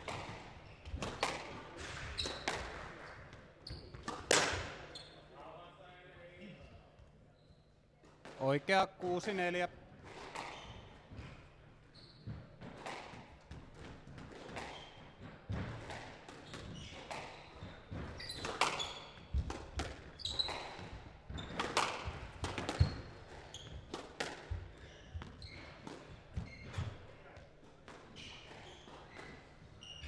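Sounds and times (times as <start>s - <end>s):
squash ball hits: 0.0s - 3.0s, 4.0s - 4.8s, 12.3s - 26.8s
shoes squeaking on court floor: 0.0s - 5.4s, 6.4s - 8.0s, 10.4s - 13.6s, 14.4s - 30.0s.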